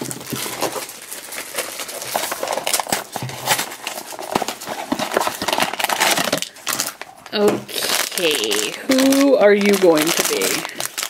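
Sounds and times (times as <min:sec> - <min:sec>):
cardboard box rustling and clicking: 0:00.0 - 0:07.0.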